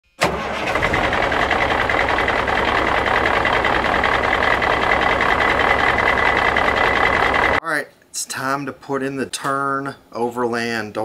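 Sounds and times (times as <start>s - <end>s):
motor running with rattle: 0.7s - 7.6s.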